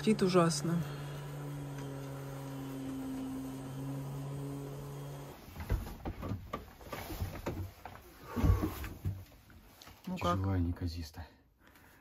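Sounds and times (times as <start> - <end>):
rustling: 5.1 - 10.2
knocks and thumps: 5.5 - 9.4.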